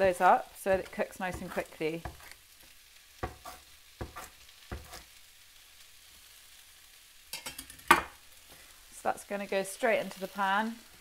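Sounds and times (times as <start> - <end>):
faint sizzle of frying: 0.0 - 11.0
knife chopping on wooden board: 0.7 - 2.4, 3.2 - 5.1.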